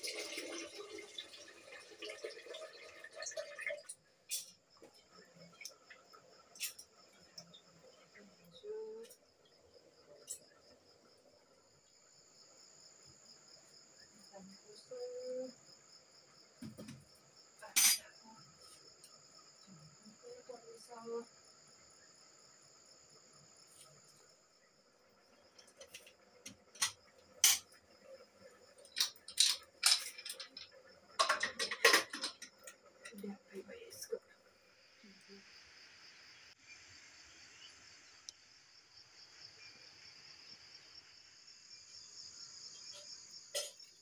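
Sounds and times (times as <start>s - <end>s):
steel pots clinking and knocking: 17.6s - 18.1s, 25.6s - 27.8s, 28.8s - 33.2s.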